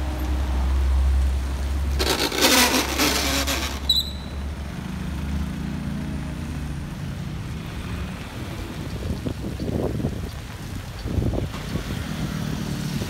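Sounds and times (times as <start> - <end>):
tyres hissing on wet asphalt: 0.0 - 13.0
brief high squeak: 2.0 - 4.4.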